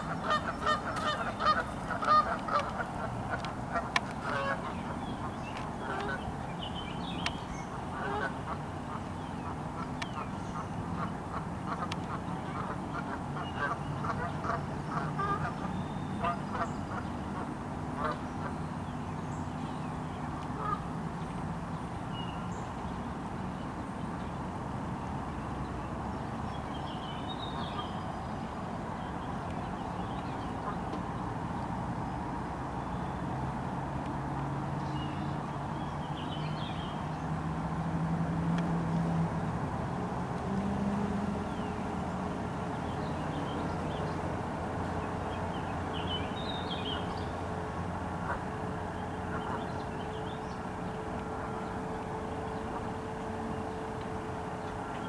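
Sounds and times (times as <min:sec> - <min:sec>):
geese honking: 0:00.0 - 0:06.2, 0:07.9 - 0:09.0, 0:09.8 - 0:18.5, 0:20.5 - 0:20.8, 0:48.1 - 0:55.0.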